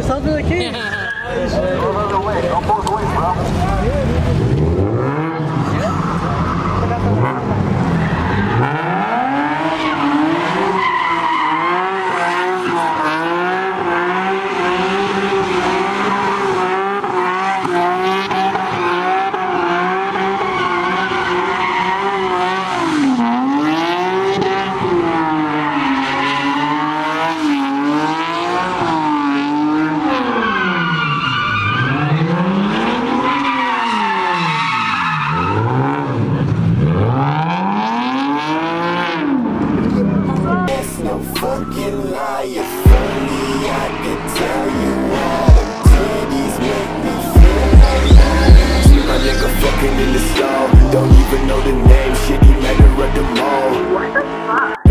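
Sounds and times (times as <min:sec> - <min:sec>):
car engine revving high: 0:00.0 - 0:54.9
tyres screeching: 0:05.1 - 0:14.2, 0:40.3 - 0:54.9.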